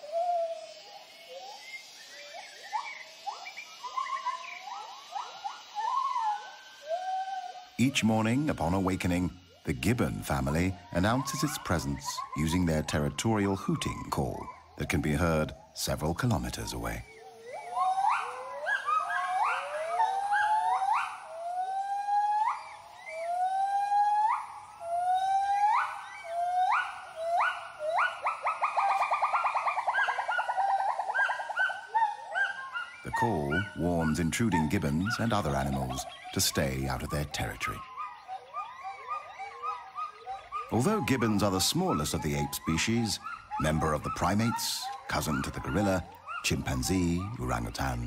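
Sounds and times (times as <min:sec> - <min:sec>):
gibbons hooting: 0:00.0 - 0:48.0.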